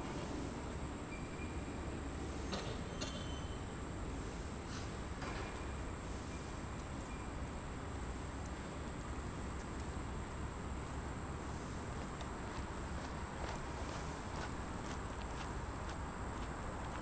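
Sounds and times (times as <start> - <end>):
faint ticks: 15.2 - 17.0.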